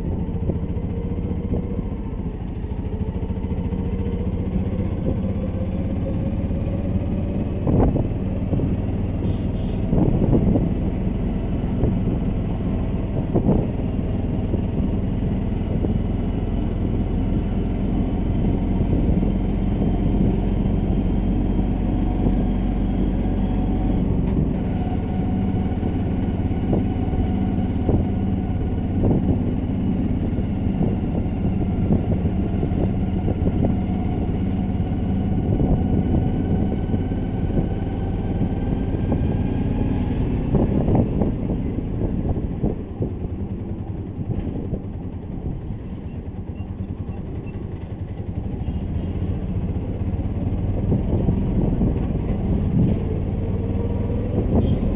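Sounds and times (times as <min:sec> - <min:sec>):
vehicle engine running: 0:00.0 - 0:54.9.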